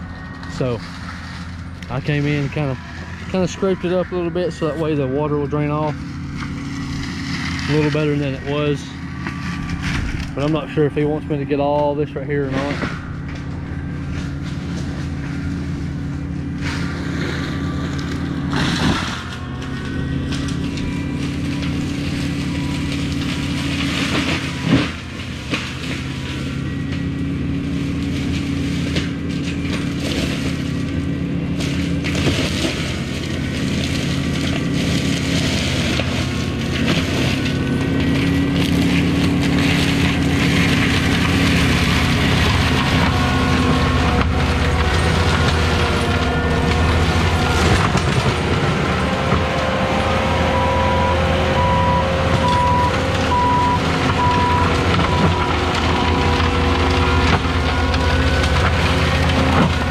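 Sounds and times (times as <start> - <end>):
diesel engine running: 0.0 - 59.9.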